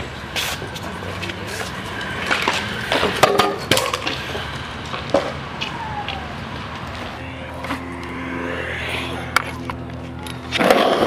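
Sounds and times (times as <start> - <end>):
scooter wheels rolling on concrete: 0.0 - 11.0
scooter deck clacking on concrete: 0.8 - 4.3.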